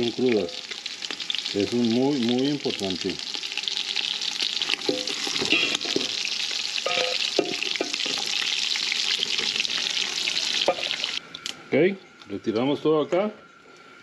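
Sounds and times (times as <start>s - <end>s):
meat sizzling in hot fat: 0.0s - 11.2s
metal spoon scraping a pot: 4.9s - 6.1s.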